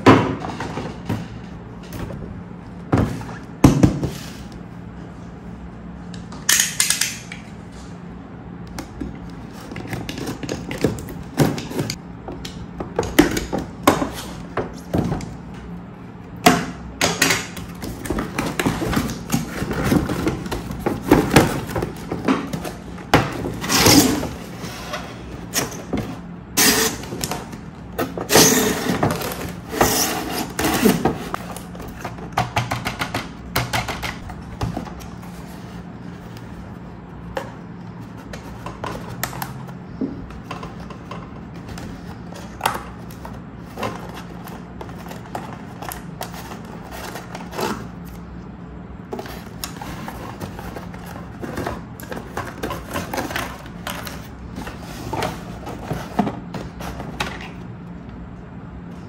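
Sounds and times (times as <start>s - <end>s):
cardboard and plastic rustling: 17.6s - 26.3s, 34.2s - 48.3s, 49.0s - 57.7s.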